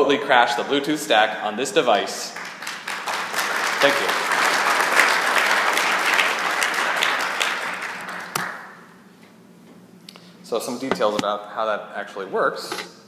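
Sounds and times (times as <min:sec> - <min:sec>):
audience applauding: 0:02.3 - 0:08.9.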